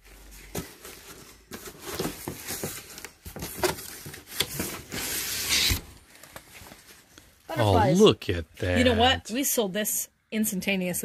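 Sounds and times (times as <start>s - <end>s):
items scraping and knocking: 0.1s - 7.0s.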